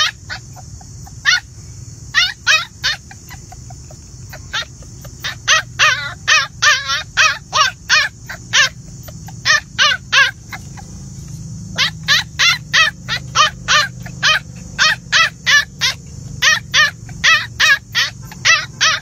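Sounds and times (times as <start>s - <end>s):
steady high hiss: 0.0s - 9.7s
puppies yelping: 0.0s - 19.0s.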